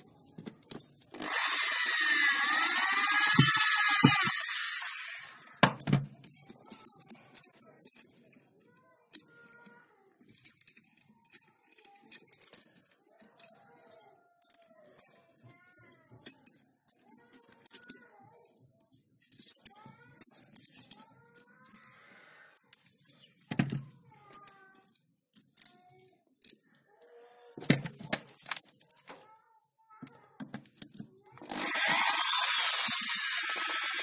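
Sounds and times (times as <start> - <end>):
electric drill motor winding down: 1.2 - 5.6, 31.4 - 34.0.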